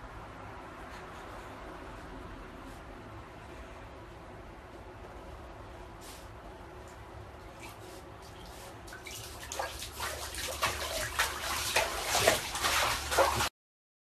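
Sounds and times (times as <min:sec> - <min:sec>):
low steady hum: 0:00.0 - 0:13.5
water splashing in a bathtub: 0:07.4 - 0:13.5.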